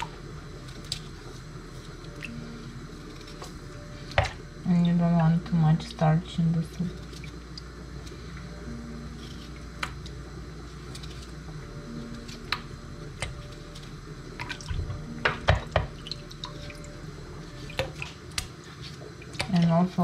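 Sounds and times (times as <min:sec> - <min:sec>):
water dripping: 0:15.5 - 0:17.0.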